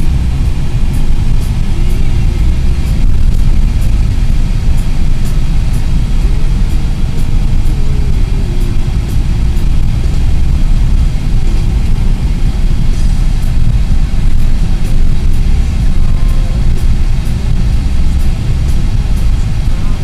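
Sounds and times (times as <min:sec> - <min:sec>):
car cabin rumble: 0:00.0 - 0:20.0
faint music: 0:00.0 - 0:20.0.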